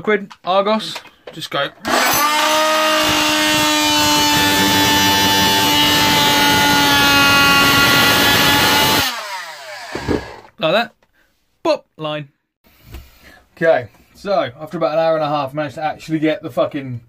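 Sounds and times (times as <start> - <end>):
oscillating multi-tool cutting board: 1.9 - 10.5.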